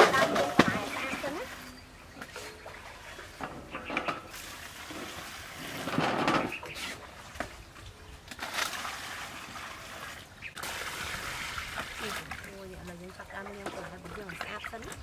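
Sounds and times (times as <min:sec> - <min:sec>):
water splashing into basin: 0:08.2 - 0:15.0.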